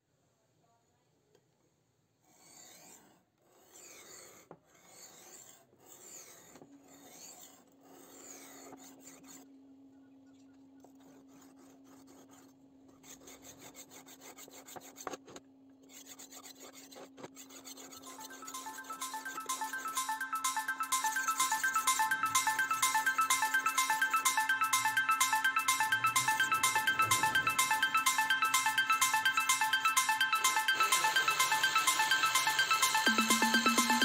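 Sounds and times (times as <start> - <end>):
file rasping on metal: 2.2 - 9.5, 11.0 - 25.9.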